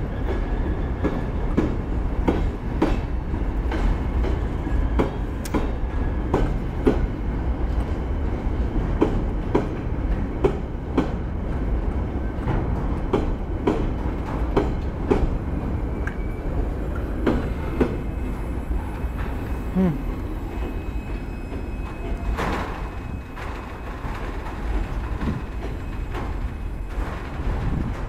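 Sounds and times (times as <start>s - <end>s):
freight train rumble: 0.0s - 28.0s
wheel clacks over rail joints: 21.5s - 28.0s.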